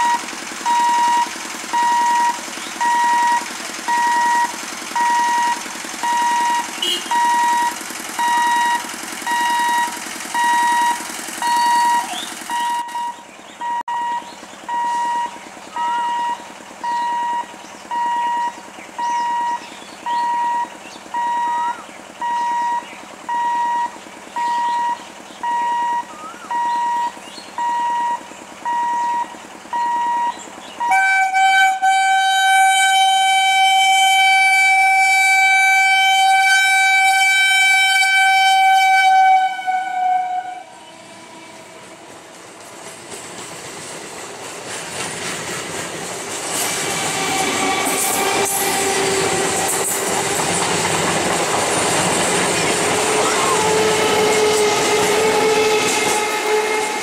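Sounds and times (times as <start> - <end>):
electronic beeper: 0.0 - 30.9, 53.2 - 53.8
train horn long note: 30.8 - 42.2, 53.0 - 57.0
train wheels clattering on rails: 41.0 - 57.0.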